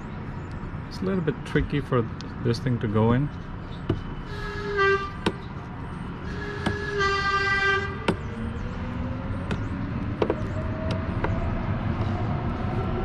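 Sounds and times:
horn-like toot: 4.3 - 5.2, 6.2 - 8.1.

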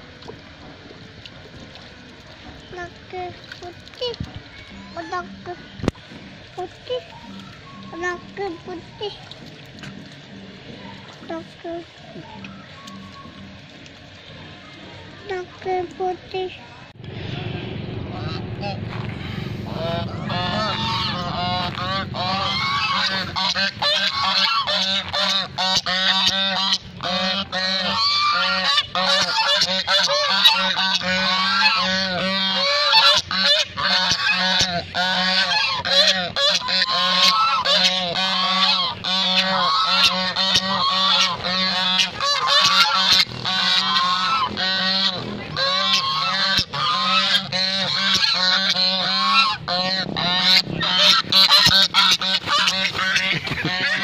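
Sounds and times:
steady low hum: 0.0 - 54.0
geese honking: 18.1 - 54.0.

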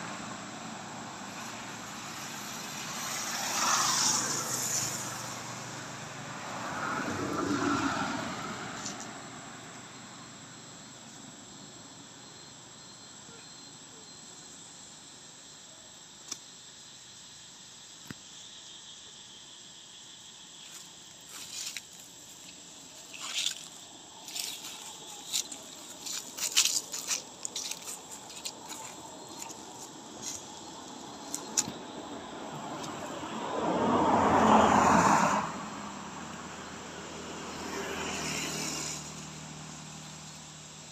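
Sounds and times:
faint insect drone: 0.0 - 40.9
dry leaves crackling: 21.2 - 31.7.

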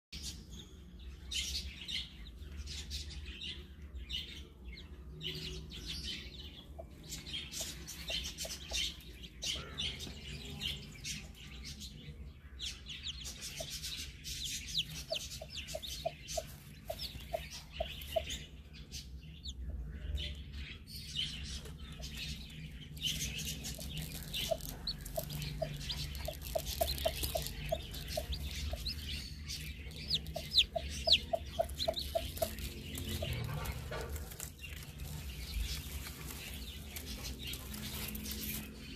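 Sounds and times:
chicks peeping: 0.2 - 38.9
hen clucking softly: 30.0 - 33.8.

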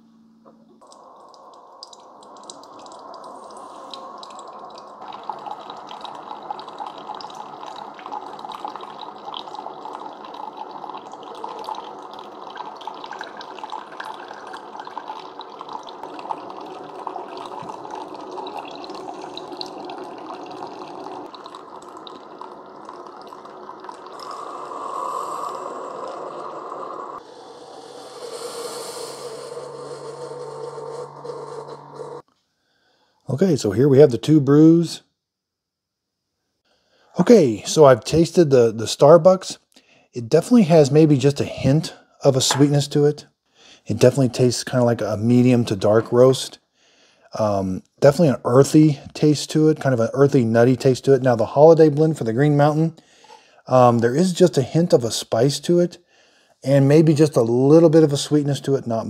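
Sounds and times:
steady low hum: 0.0 - 32.2
coffee machine pump: 0.7 - 32.2
coffee pouring into mug: 0.8 - 32.2, 42.3 - 43.0, 44.0 - 46.4.

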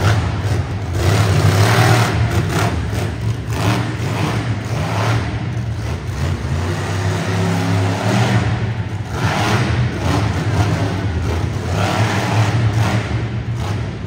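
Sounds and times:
truck engine revving: 0.0 - 14.0.

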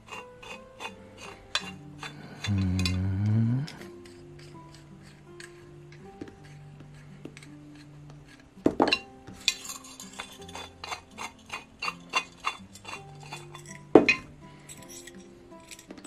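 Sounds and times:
light metal clicks and clinks: 8.8 - 16.0.

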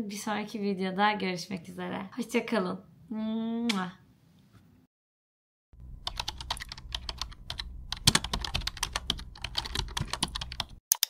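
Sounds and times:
keyboard typing: 6.0 - 11.0.

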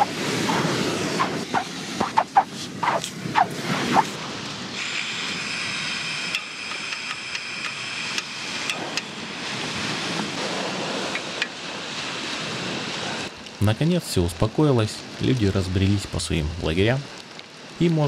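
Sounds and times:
gas stove hissing: 4.8 - 9.7.

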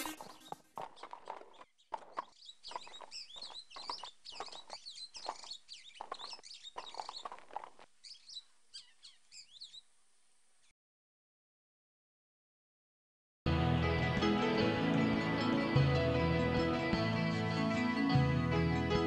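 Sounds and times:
horse hooves clip-clopping: 0.0 - 7.9
birds chirping: 0.0 - 10.0.

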